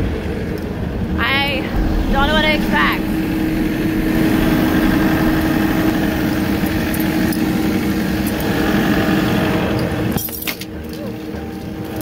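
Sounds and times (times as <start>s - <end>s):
engine humming steadily: 1.7s - 9.0s.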